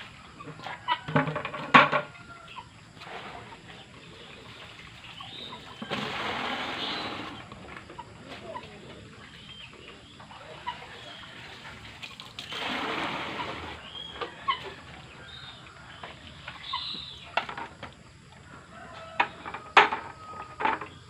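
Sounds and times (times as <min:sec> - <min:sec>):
chickens clucking: 0:00.0 - 0:21.0
water splashing: 0:03.0 - 0:07.6, 0:10.3 - 0:16.8.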